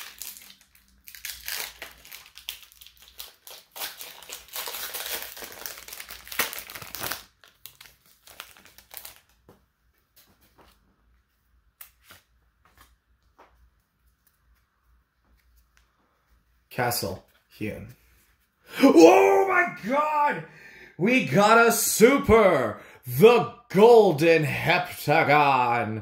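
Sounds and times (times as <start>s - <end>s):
foil pack crinkling and tearing: 0.0s - 9.4s.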